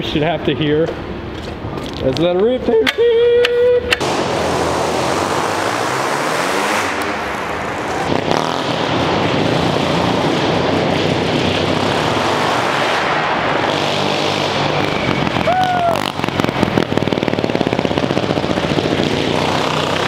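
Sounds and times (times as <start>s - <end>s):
go-kart engine revving: 4.0s - 20.0s.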